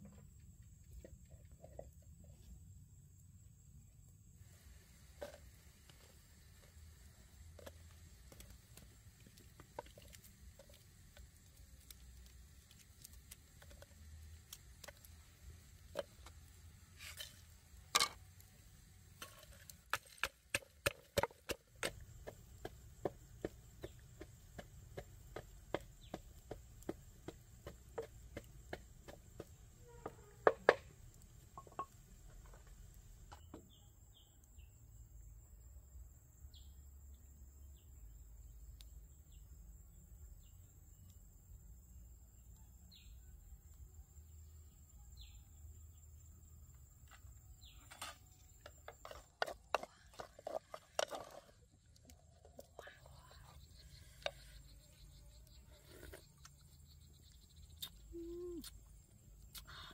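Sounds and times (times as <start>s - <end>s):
blade chopping on wood: 19.9s - 23.6s
high insect buzz: 28.7s - 31.9s.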